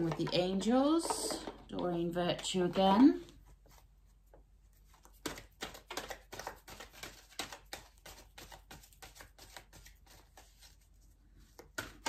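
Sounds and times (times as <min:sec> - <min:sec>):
cards being shuffled: 0:04.8 - 0:10.9.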